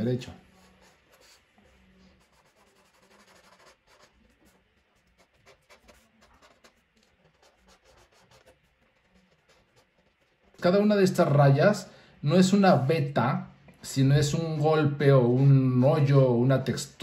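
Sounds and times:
marker drawing on paper: 0:00.4 - 0:10.6.

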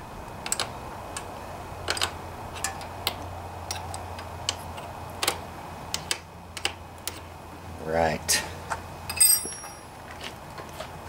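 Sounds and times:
low steady hum: 0:00.0 - 0:11.0
wrench clicking on metal: 0:00.4 - 0:01.3, 0:01.9 - 0:04.6, 0:05.2 - 0:07.2.

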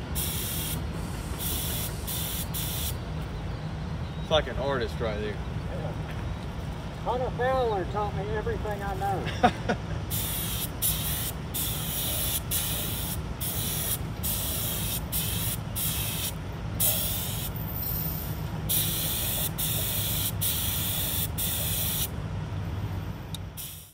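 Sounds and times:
paint spray gun hissing: 0:00.1 - 0:03.0, 0:10.1 - 0:17.6, 0:18.7 - 0:22.1, 0:23.6 - 0:23.9.

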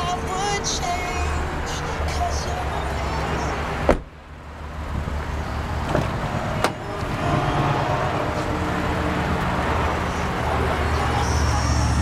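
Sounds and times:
steady low rumble: 0:00.0 - 0:12.0
car door swinging open: 0:03.8 - 0:04.2, 0:05.8 - 0:07.2
car door latch clicks: 0:03.9 - 0:04.1.

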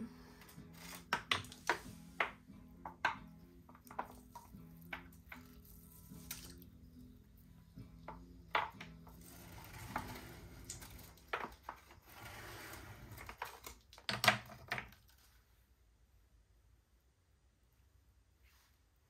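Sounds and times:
hard objects knocking and clinking: 0:01.0 - 0:05.9, 0:07.8 - 0:09.4.

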